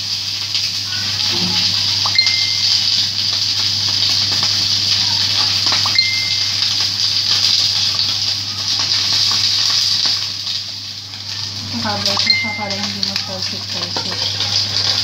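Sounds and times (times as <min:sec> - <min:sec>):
fish sizzling in hot oil: 0:00.0 - 0:15.0
oil popping: 0:12.0 - 0:15.0.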